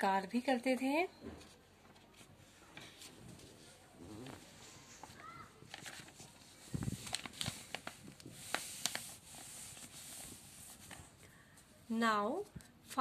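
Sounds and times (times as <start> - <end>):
book pages rustling: 1.9 - 11.2.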